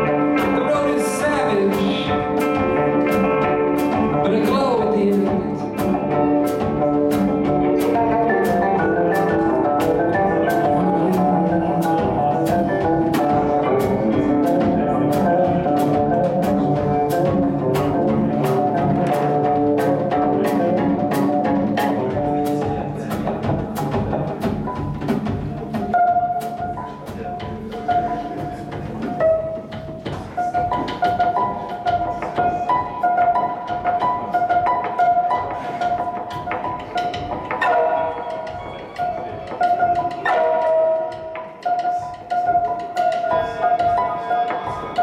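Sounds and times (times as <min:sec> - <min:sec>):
drums ticking steadily: 0:00.0 - 0:45.0
electric guitar: 0:00.0 - 0:45.0.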